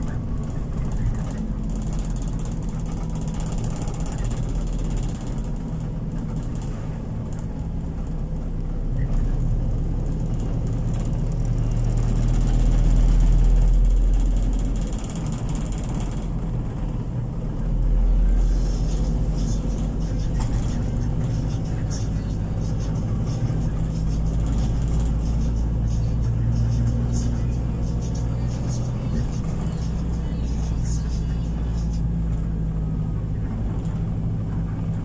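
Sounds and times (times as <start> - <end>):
road and wind noise: 0.0 - 35.0
vehicle engine humming: 0.0 - 35.0.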